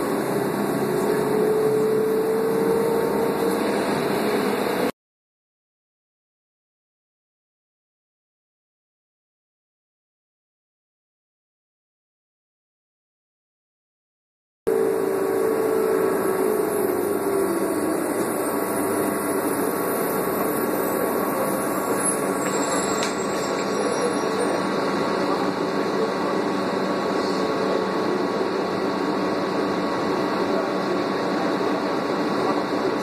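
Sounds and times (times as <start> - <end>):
bus engine and road hum: 0.0 - 5.0, 14.7 - 33.0
engine whine: 0.0 - 5.0, 14.7 - 33.0.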